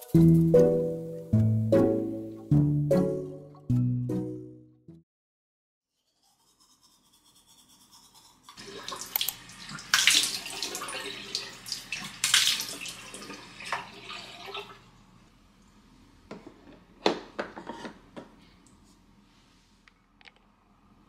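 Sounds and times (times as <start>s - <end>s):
tap water running into washbasin: 8.6s - 14.8s.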